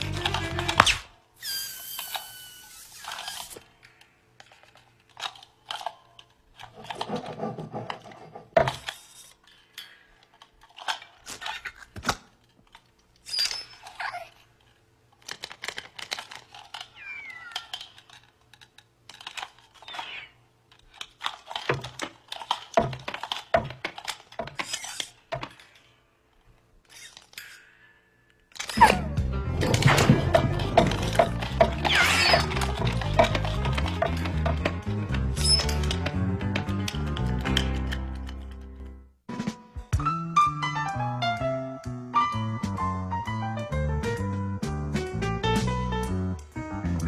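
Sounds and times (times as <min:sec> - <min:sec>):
squeaky creaking glides: 0:00.0 - 0:03.7, 0:13.2 - 0:14.5, 0:16.4 - 0:18.3, 0:19.4 - 0:20.4, 0:24.5 - 0:25.3, 0:26.8 - 0:27.6, 0:29.9 - 0:34.6, 0:35.2 - 0:36.0.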